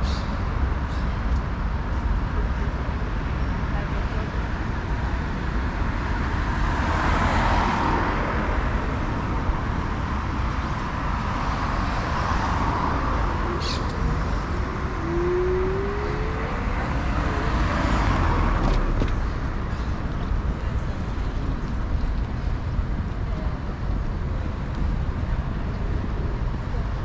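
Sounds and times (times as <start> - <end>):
cars passing: 0.0 - 27.0
steady traffic hum: 0.0 - 27.0.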